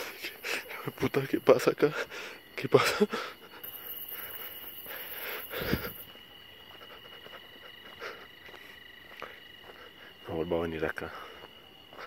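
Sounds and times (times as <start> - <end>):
crickets chirping: 0.0 - 12.0.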